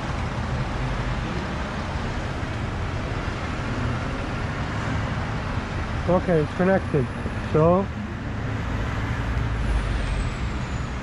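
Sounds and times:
road traffic: 0:00.0 - 0:11.0.

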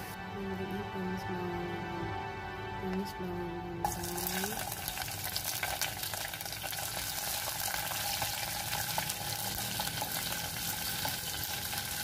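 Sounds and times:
onion sizzling in hot oil: 0:03.8 - 0:12.0.

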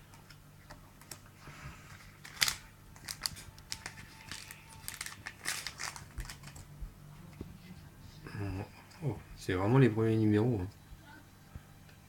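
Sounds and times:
foil pack crinkling: 0:01.9 - 0:06.7.

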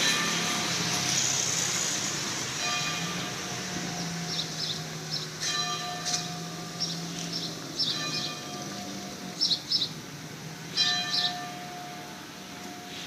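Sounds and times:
bell tolling: 0:00.0 - 0:01.2, 0:02.6 - 0:04.2, 0:05.4 - 0:06.8, 0:07.9 - 0:09.3, 0:10.7 - 0:13.0.

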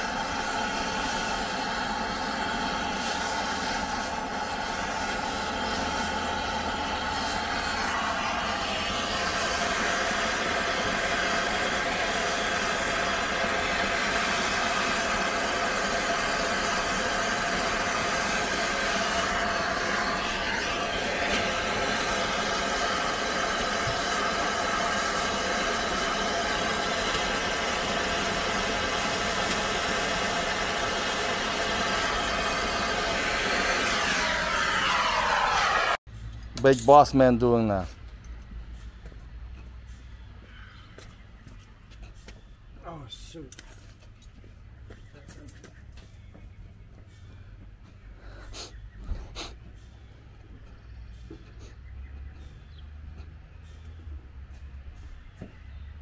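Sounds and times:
machine running with hiss: 0:00.0 - 0:36.0.

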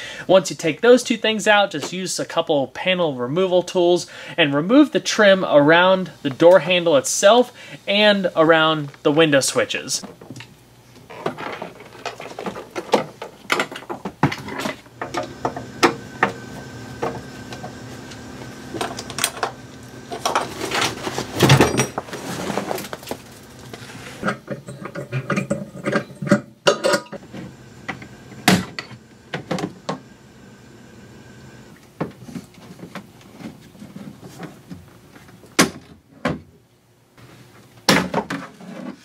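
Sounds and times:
carpet rustling: 0:14.0 - 0:24.2
steady hum: 0:14.2 - 0:31.9.

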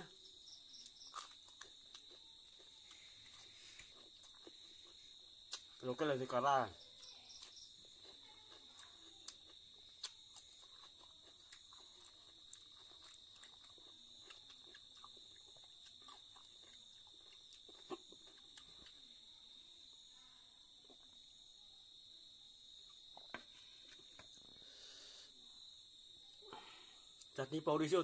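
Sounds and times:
crickets chirring: 0:00.0 - 0:28.0
person chewing food: 0:00.4 - 0:05.8, 0:06.9 - 0:19.5, 0:20.8 - 0:21.2, 0:22.9 - 0:24.8.

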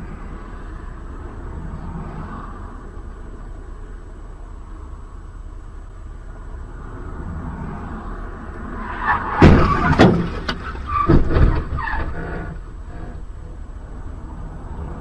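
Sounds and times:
road noise rumble: 0:00.0 - 0:15.0
car crash impacts and crunching: 0:09.0 - 0:12.6.

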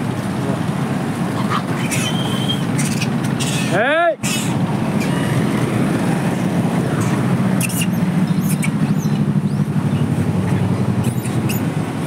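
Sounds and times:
road traffic rumble: 0:00.0 - 0:12.0
high squeaky chirps: 0:01.7 - 0:03.7, 0:07.6 - 0:09.6, 0:10.5 - 0:11.7.

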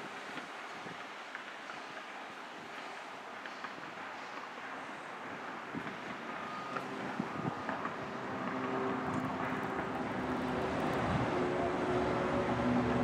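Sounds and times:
construction work: 0:00.0 - 0:13.0
distant engines: 0:00.0 - 0:13.0
wind rumbling on microphone: 0:04.9 - 0:13.0.

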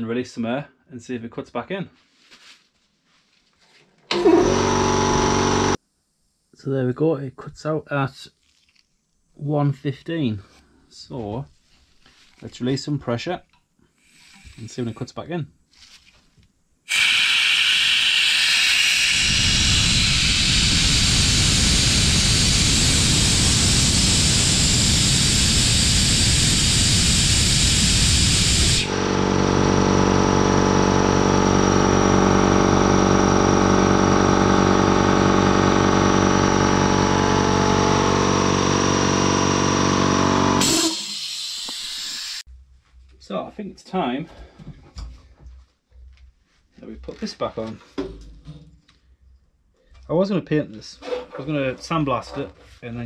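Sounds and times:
compressor motor and pump running: 0:04.1 - 0:05.8, 0:16.9 - 0:42.4
compressed air hissing: 0:16.9 - 0:28.9, 0:40.6 - 0:42.4.

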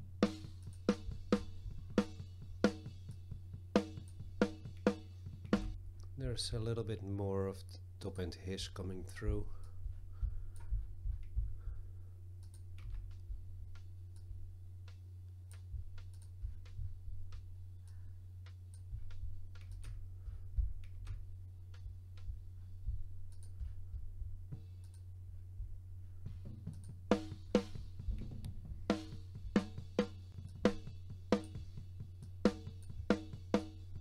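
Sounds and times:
metal drum kit playback: 0:00.0 - 0:07.0, 0:08.7 - 0:12.0, 0:12.8 - 0:15.0, 0:15.6 - 0:18.0, 0:18.8 - 0:24.8, 0:25.5 - 0:34.0
low steady hum: 0:00.0 - 0:34.0
computer mouse clicking: 0:12.4 - 0:20.0, 0:23.3 - 0:23.6.

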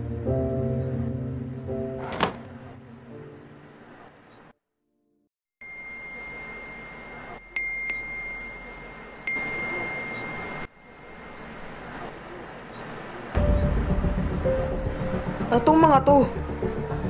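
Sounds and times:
bright electronic dings: 0:05.6 - 0:11.4
steady high ringing tone: 0:05.6 - 0:12.8.

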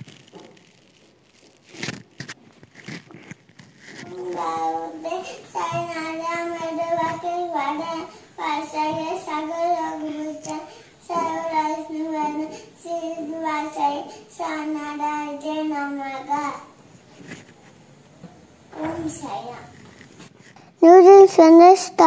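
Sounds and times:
boy singing: 0:04.0 - 0:16.7.

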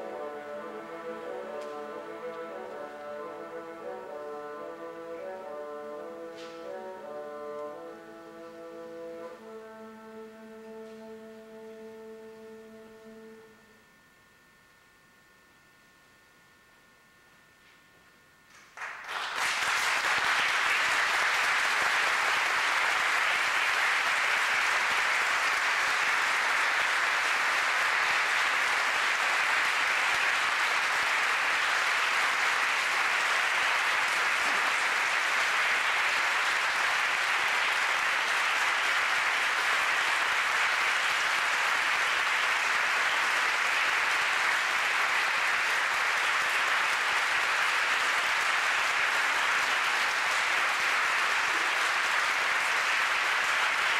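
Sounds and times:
large audience applauding: 0:18.5 - 0:53.9.

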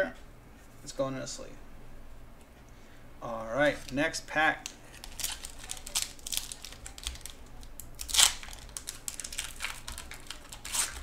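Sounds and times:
foil wrapper crinkling and tearing: 0:03.6 - 0:11.0.

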